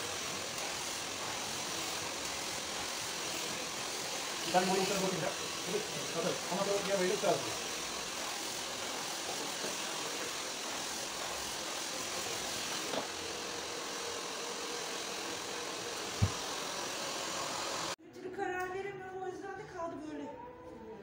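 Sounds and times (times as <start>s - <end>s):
hair dryer running: 0.0s - 18.0s.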